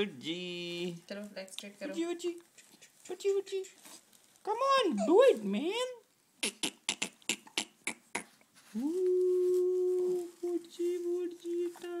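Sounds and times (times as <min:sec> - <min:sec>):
person humming: 0:08.7 - 0:12.0.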